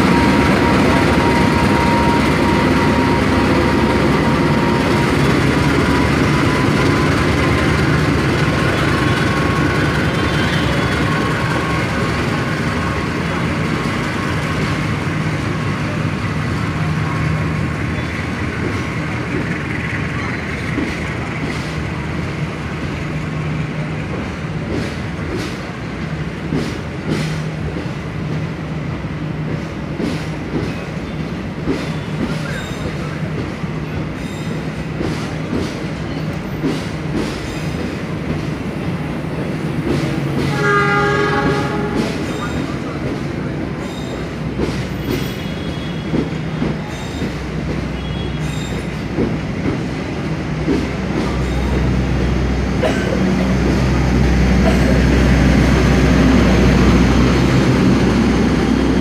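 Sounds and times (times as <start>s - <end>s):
train wheels clacking: 17.6s - 22.0s, 23.9s - 28.5s, 29.3s - 59.0s
locomotive engine drone: 47.5s - 59.0s.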